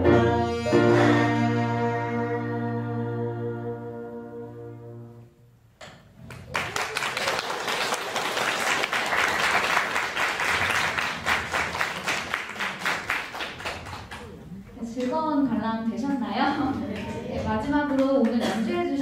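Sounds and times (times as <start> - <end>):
audience applause: 6.2 - 14.4.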